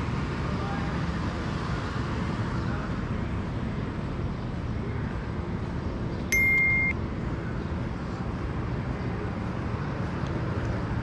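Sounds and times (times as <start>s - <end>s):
city traffic rumble: 0.0s - 11.0s
loud high-pitched steady tone: 6.3s - 7.0s.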